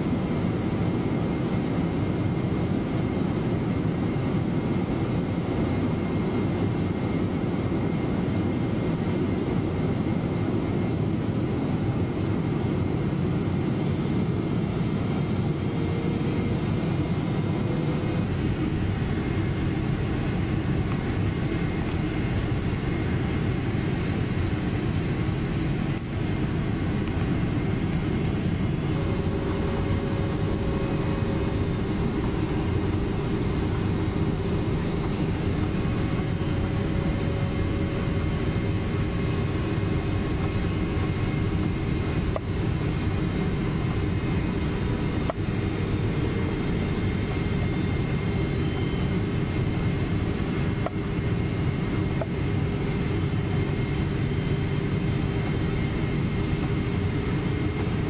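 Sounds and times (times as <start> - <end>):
jet engine and airflow noise: 0.0 - 58.0
faint whining tones: 0.4 - 58.0.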